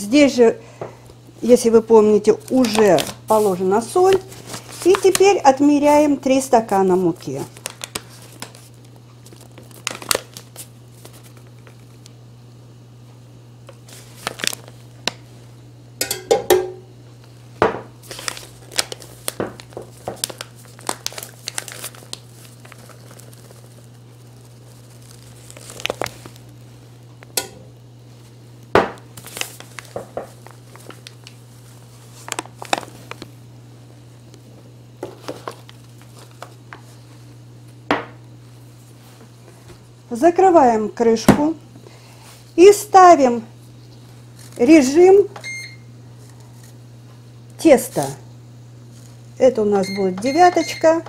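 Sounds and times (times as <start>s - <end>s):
paper bag crinkling: 2.4s - 6.1s, 6.8s - 12.0s, 13.7s - 15.0s, 18.0s - 27.3s, 29.1s - 33.4s, 35.0s - 37.0s.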